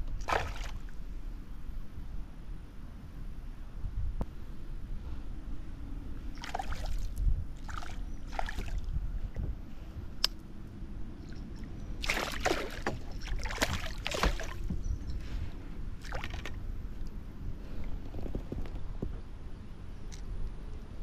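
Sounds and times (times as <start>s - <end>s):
steady low rumble: 0.0s - 21.0s
water splashing: 0.2s - 0.9s, 6.4s - 8.9s, 11.3s - 14.8s, 16.0s - 16.6s.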